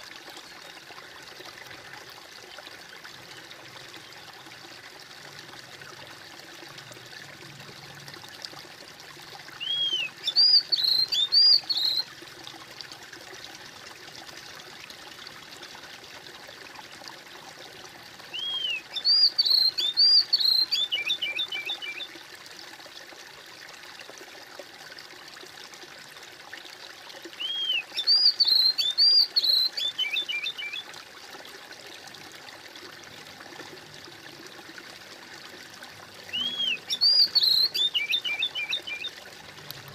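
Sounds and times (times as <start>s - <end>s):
stream trickling and splashing: 0.0s - 39.9s
songbird singing: 9.6s - 12.1s, 18.3s - 22.1s, 27.4s - 30.9s, 36.2s - 39.2s.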